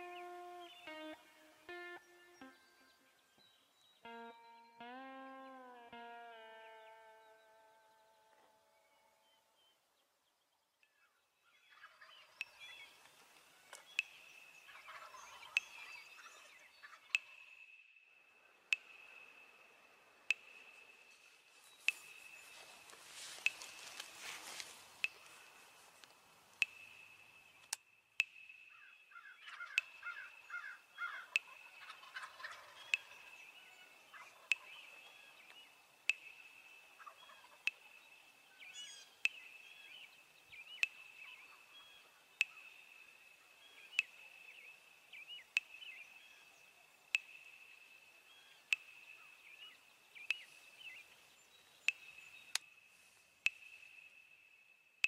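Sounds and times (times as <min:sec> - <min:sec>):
turkeys calling: 0:11.0 - 0:17.6, 0:18.6 - 0:27.8, 0:28.7 - 0:42.8
sharp tick: 0:12.4 - 0:14.3, 0:18.7 - 0:19.5, 0:20.3 - 0:20.9, 0:21.8 - 0:28.8, 0:31.0 - 0:31.5, 0:37.6 - 0:37.9, 0:42.4 - 0:42.7, 0:48.7 - 0:49.2.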